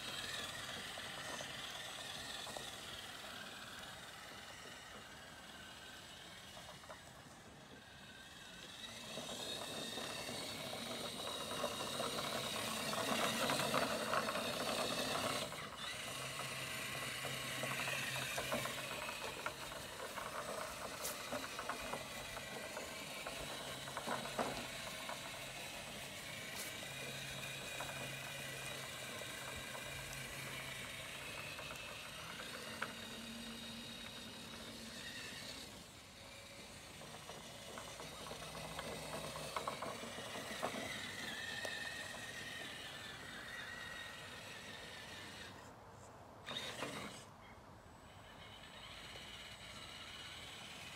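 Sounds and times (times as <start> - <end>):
electric motor whine: 0.0 - 45.7, 46.4 - 47.3, 48.0 - 50.9
tyres rustling through grass: 18.2 - 31.6.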